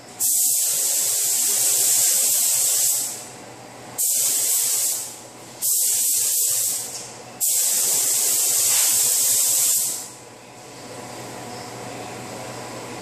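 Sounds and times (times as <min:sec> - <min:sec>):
paint spray gun hissing: 0:00.2 - 0:03.2, 0:04.0 - 0:10.1.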